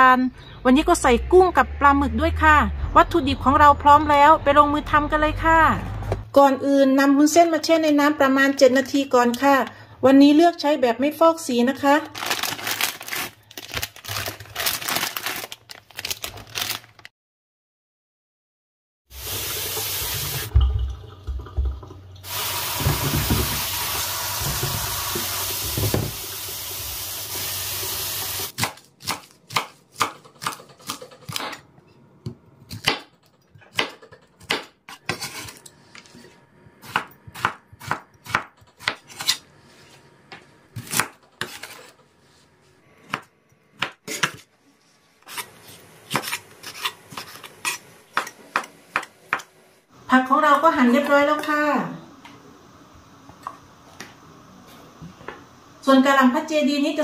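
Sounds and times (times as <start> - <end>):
kitchen tap running: 19.1 - 28.5
knife chopping on wooden board: 36.9 - 39.4.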